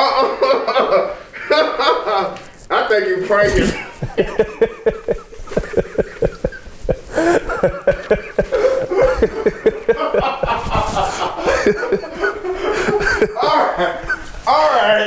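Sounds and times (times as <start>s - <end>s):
man laughing: 3.5s - 14.4s.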